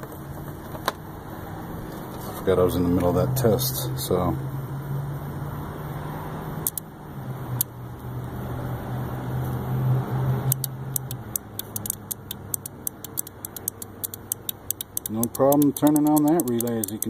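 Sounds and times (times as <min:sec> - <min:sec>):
relay clicking: 0:10.5 - 0:17.0.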